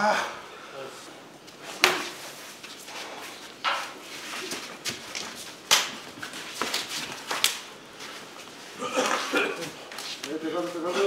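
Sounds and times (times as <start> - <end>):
slaps of body contact: 1.8 - 2.8, 4.5 - 7.7.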